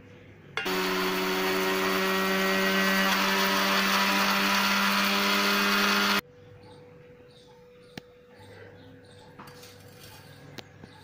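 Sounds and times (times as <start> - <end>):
mixer grinder running: 0.6 - 6.2.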